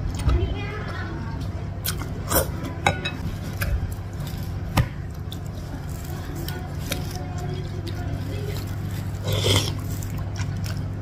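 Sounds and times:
steady low hum: 0.0s - 11.0s
noodles slurped and chewed: 5.1s - 11.0s.

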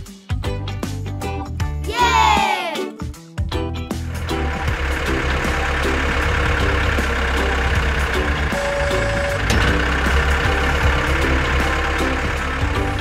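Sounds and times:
tractor engine rumbling: 3.8s - 13.0s.

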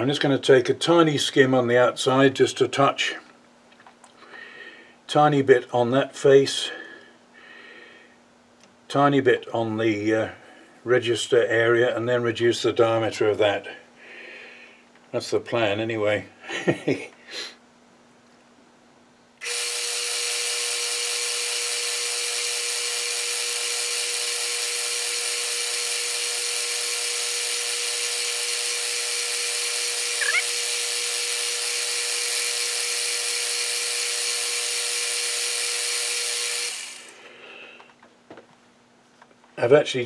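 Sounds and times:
brief rising squeak: 30.2s - 30.5s.

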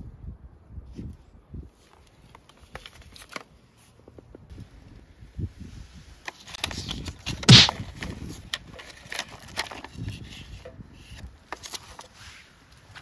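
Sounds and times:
paper band tearing: 7.5s - 7.7s
paper and plastic crinkling: 8.7s - 10.1s.

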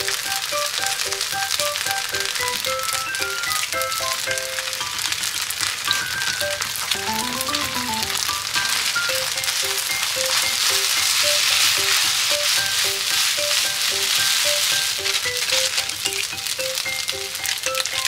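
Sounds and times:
egg and rice sizzling in frying pan: 0.0s - 18.0s
spatula stirring in pan: 9.5s - 16.6s.

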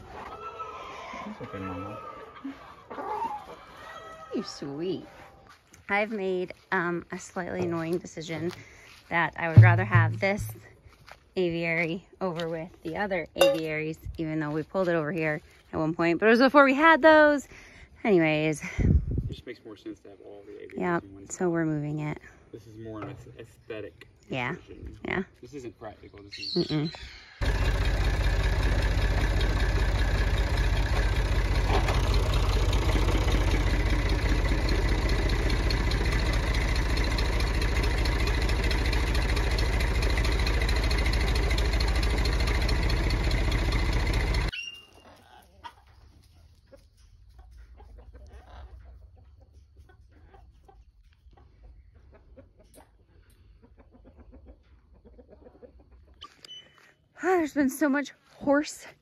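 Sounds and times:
tractor engine running under load: 9.2s - 10.6s, 27.4s - 44.5s.

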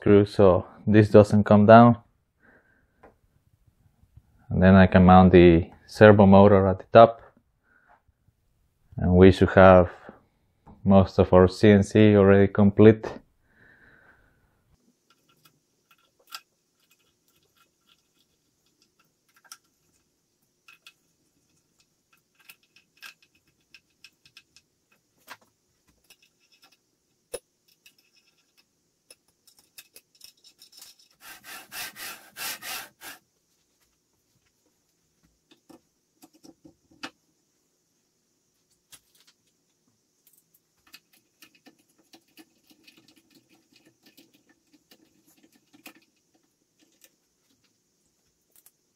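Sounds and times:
quick rasping strokes: 31.2s - 33.2s.

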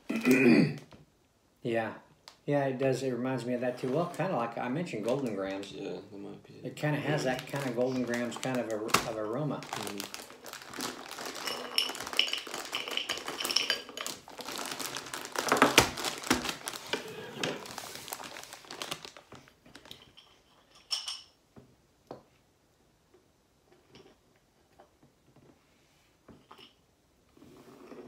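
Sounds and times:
plastic bag crinkling: 7.0s - 20.3s.

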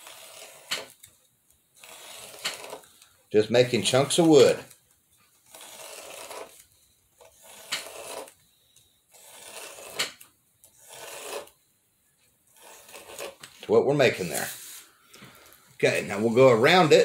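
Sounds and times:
craft blade slicing cardstock: 0.0s - 1.0s, 1.9s - 2.8s, 7.3s - 8.3s, 9.2s - 10.2s.

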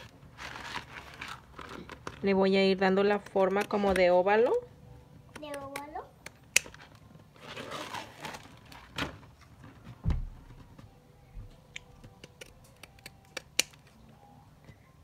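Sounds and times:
scissors snipping vinyl: 11.7s - 13.9s.

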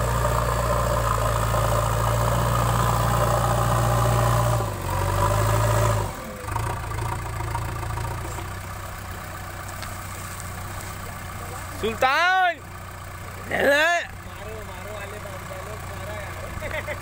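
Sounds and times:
backhoe diesel engine running: 0.0s - 17.0s.

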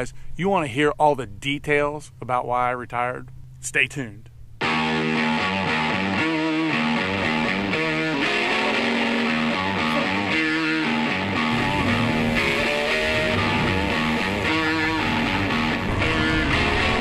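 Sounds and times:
strummed guitar music: 4.6s - 17.0s.

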